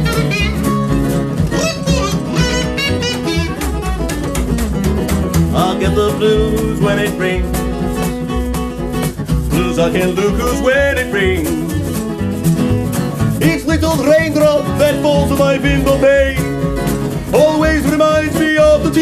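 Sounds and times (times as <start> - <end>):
upright bass and acoustic guitar: 0.0 - 19.0
person singing wordless vocals: 5.5 - 7.6, 9.5 - 11.8, 13.4 - 16.6, 17.2 - 19.0.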